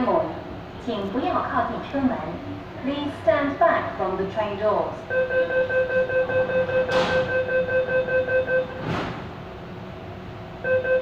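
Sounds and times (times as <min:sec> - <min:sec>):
rapid warning beeps: 0:05.1 - 0:08.8, 0:10.6 - 0:11.0.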